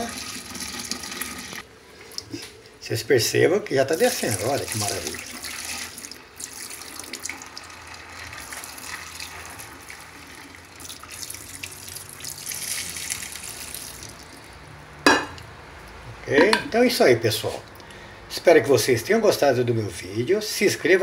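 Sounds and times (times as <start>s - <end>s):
water running down a sink drain: 0.0s - 1.6s, 3.9s - 14.5s.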